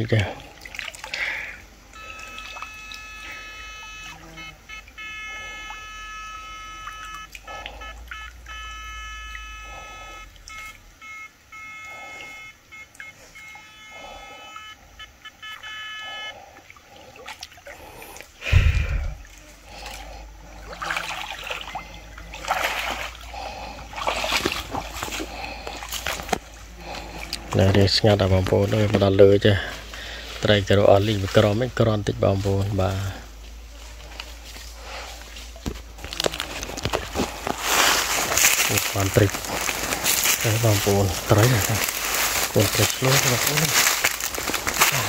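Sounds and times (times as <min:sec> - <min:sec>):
heavy splashing: 0:00.0 - 0:08.7, 0:16.8 - 0:45.0
person wading through water: 0:00.0 - 0:45.0
steady high tones: 0:01.9 - 0:16.4, 0:36.4 - 0:45.0.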